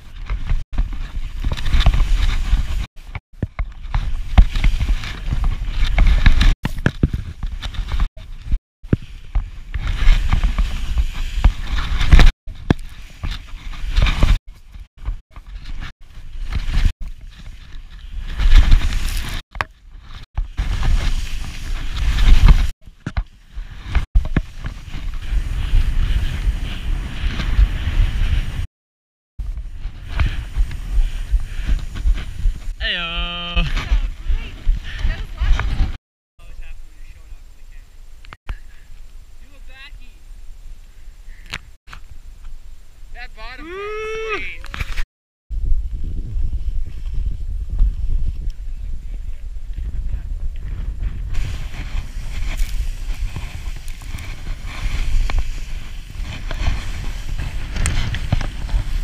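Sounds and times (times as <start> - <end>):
skis scraping through snow: 0.0 - 28.7, 29.4 - 32.8, 33.4 - 36.0, 46.5 - 59.0
wind rumbling on microphone: 0.0 - 28.7, 29.4 - 43.1, 43.9 - 59.0
wind buffeting microphone: 23.5 - 28.7, 45.5 - 59.0.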